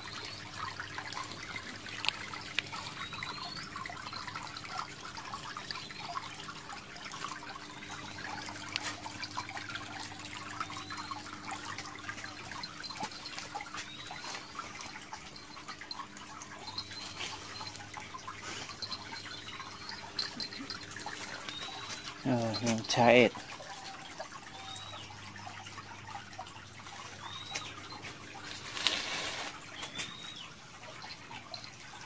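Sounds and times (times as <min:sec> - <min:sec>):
water trickling and dripping: 0:00.0 - 0:32.0.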